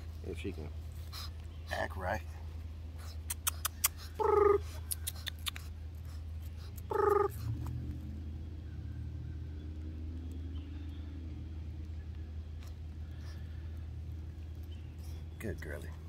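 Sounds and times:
puppy whining: 0:03.2 - 0:05.7, 0:06.6 - 0:07.8.

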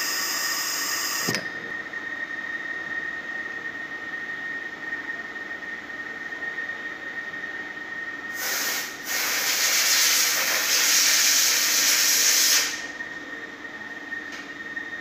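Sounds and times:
loud air hiss: 0:08.3 - 0:12.9.

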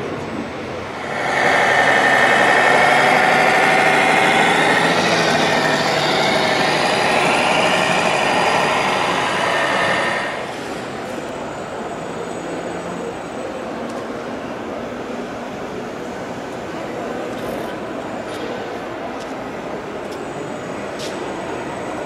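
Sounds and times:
diesel engine sound from loudspeaker: 0:00.8 - 0:11.1.

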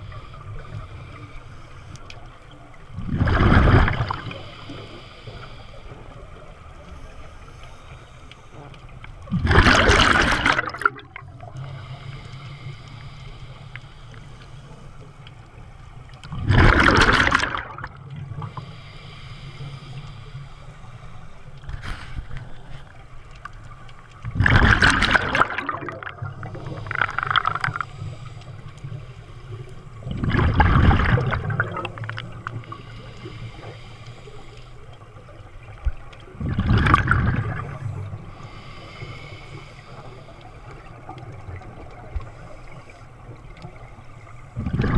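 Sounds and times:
exhaled bubbles rushing: 0:03.0 - 0:04.4, 0:09.3 - 0:11.2, 0:16.3 - 0:18.2, 0:24.2 - 0:27.8, 0:30.0 - 0:32.6, 0:36.4 - 0:38.2, 0:44.6 - 0:44.9.

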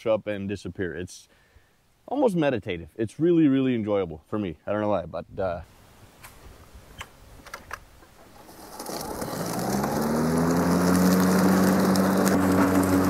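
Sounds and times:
electric lawn mower motor humming: 0:08.4 - 0:13.0.

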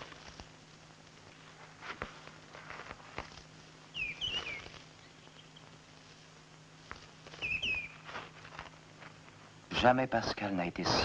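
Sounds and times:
twigs cracking: 0:00.0 - 0:09.4
footsteps through dry undergrowth: 0:00.0 - 0:09.6
bird chirping: 0:03.9 - 0:05.7, 0:07.4 - 0:08.0.

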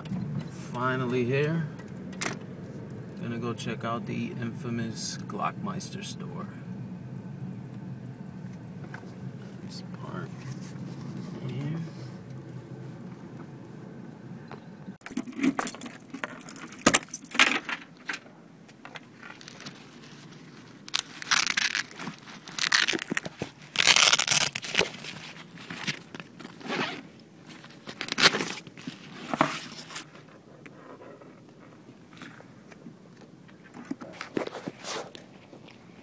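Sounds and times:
objects rustling and knocking: 0:14.5 - 0:30.7.

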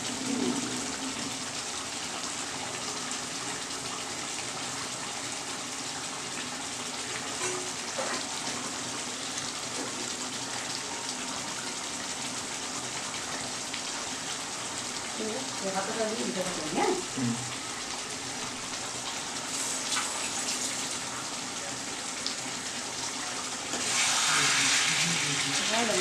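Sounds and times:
curry hissing in a pan: 0:00.0 - 0:26.0.

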